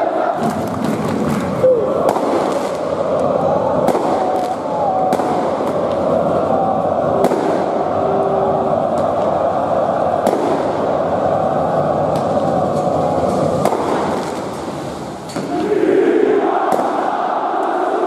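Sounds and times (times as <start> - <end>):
crowd chanting and shouting: 0.0 - 18.0
firecracker bangs: 2.0 - 2.9, 3.8 - 6.0, 7.2 - 7.9, 10.2 - 11.0, 13.6 - 14.8, 16.6 - 17.2.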